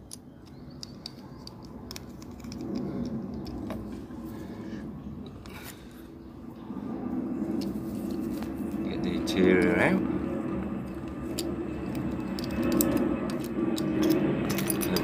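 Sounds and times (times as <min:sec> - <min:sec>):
plastic and metal clicks and scrapes: 0:00.0 - 0:03.9, 0:10.9 - 0:15.0
low rumble: 0:01.7 - 0:15.0.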